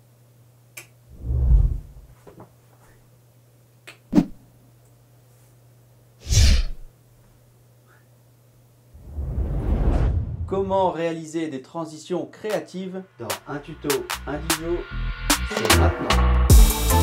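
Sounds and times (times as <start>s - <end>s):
low steady hum: 0.0s - 2.2s
loud whooshing burst: 1.1s - 2.0s, 9.0s - 10.9s.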